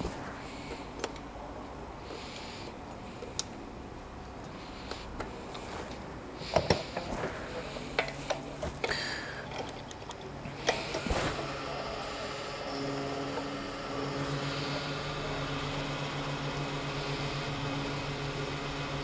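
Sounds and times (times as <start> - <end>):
fuel pump humming: 10.5 - 19.0.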